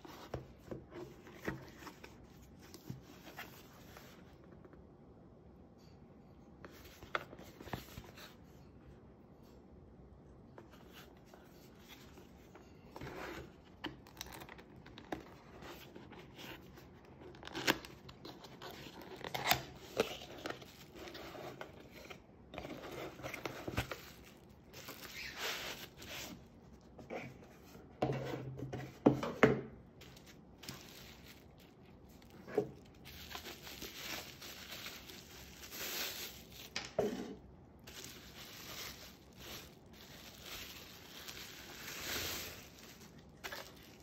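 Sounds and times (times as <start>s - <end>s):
cardboard box scraping and rustling: 18.8s - 26.4s
mesh bag and bubble wrap handled: 22.8s - 26.9s, 30.0s - 44.0s.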